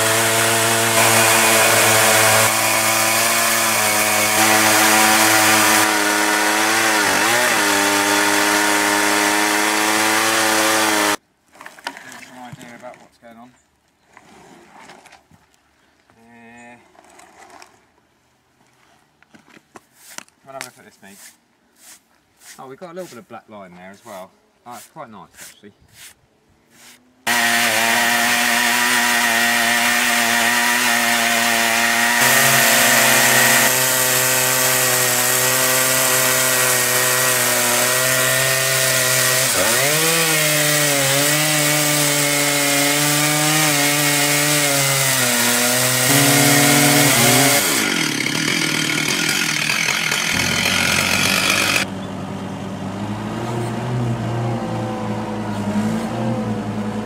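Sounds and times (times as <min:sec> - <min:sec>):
chainsaws cutting through log: 0:00.0 - 0:11.2, 0:27.3 - 0:51.9.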